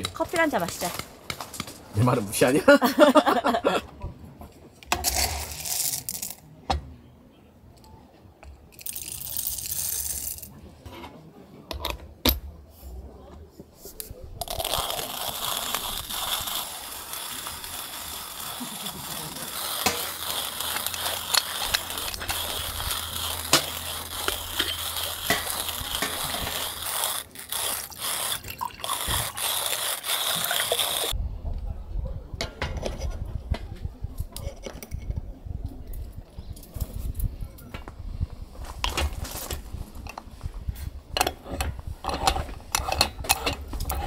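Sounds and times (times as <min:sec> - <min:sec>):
hand coffee grinder grinding: 0:05.0 - 0:06.4, 0:08.8 - 0:10.5, 0:14.4 - 0:31.2, 0:41.2 - 0:44.0.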